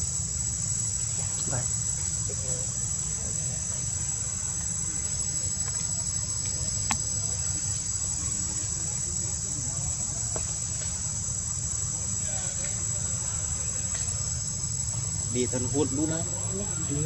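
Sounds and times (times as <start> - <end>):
insect chorus: 0.0 - 17.0.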